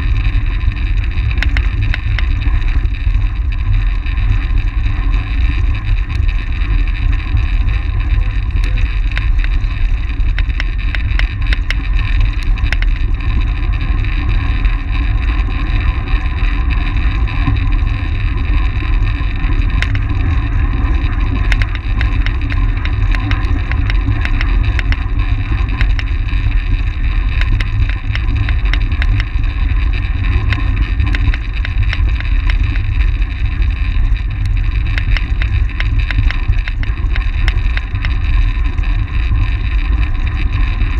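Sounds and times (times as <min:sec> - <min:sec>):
sharp clicks: 0:01.4 - 0:02.4, 0:08.6 - 0:11.9, 0:12.6 - 0:13.0, 0:19.8 - 0:20.1, 0:21.4 - 0:26.2, 0:27.4 - 0:29.4, 0:30.4 - 0:32.7, 0:34.4 - 0:38.3.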